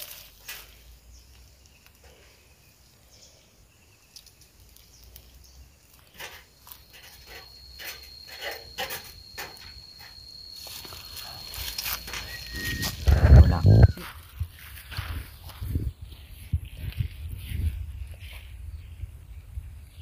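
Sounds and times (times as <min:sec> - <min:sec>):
high insect note: 0:06.5 - 0:14.1.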